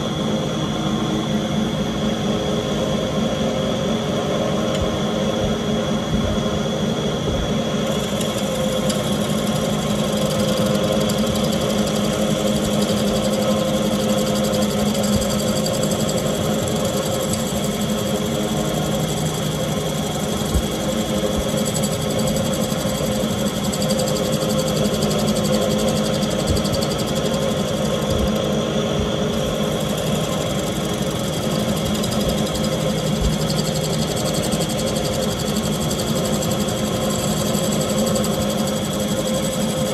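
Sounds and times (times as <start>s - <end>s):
gouge scraping spinning wood: 7.9s - 28.4s, 29.4s - 39.9s
wood lathe motor hum: 7.9s - 28.6s, 29.3s - 39.9s.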